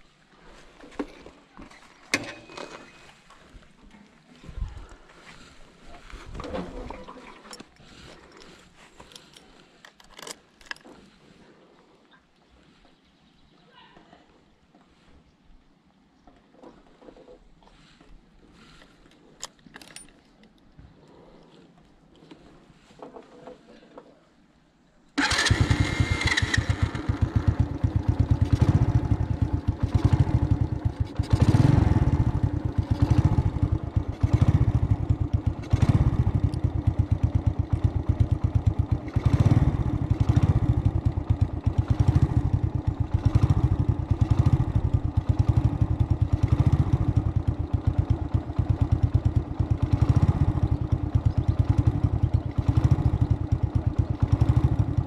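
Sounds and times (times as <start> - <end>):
vehicle engine running: 25.2 - 55.0.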